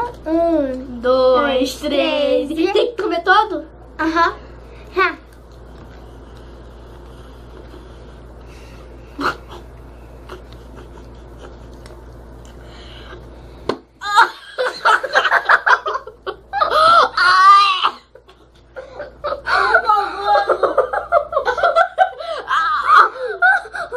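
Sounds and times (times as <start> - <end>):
low steady hum: 0.0 - 23.9
girls laughing and squealing: 14.0 - 23.9.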